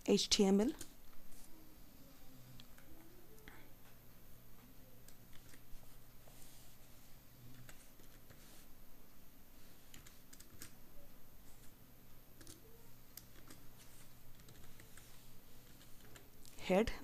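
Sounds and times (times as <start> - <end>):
typing on keyboard: 9.9 - 10.8, 12.4 - 13.7, 14.3 - 16.3.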